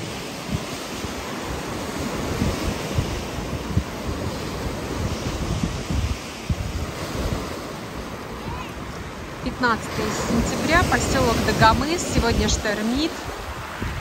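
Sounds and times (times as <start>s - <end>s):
surf on pebble beach: 0.0s - 14.0s
wind buffeting microphone: 0.0s - 14.0s.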